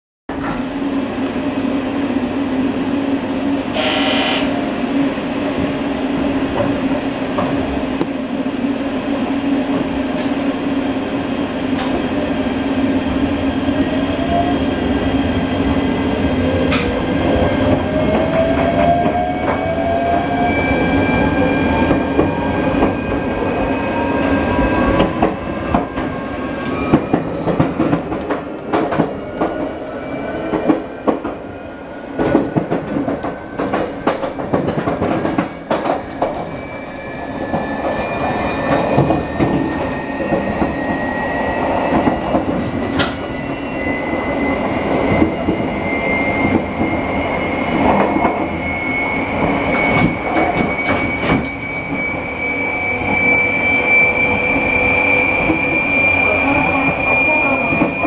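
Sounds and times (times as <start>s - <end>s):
electric train hum: 0.3s - 58.0s
brief high tone: 3.7s - 4.6s
train motor whine rising: 3.7s - 4.6s.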